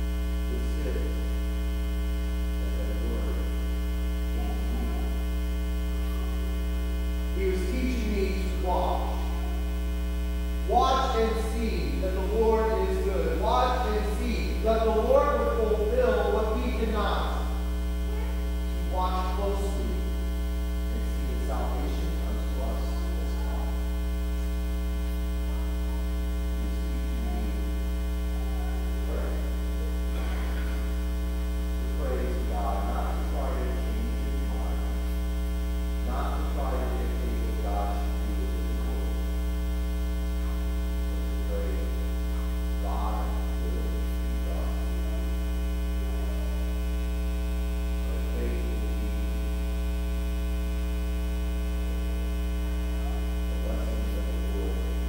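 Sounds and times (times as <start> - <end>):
electrical mains hum: 0.0 - 55.0
faint voice: 4.2 - 5.3, 5.9 - 6.6, 17.0 - 20.1, 20.9 - 23.9, 25.4 - 31.0, 36.0 - 39.4, 41.4 - 46.9.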